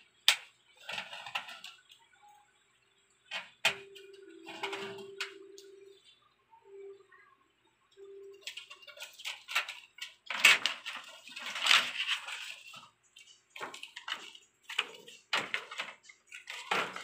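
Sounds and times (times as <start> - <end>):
plastic sheet rustling: 8.4 - 17.0.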